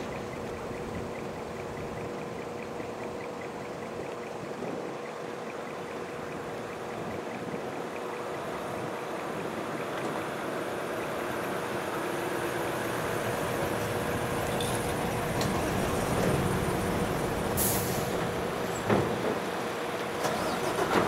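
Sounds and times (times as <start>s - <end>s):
truck diesel engine running: 5.4s - 21.0s
air brake hiss: 17.6s - 18.2s.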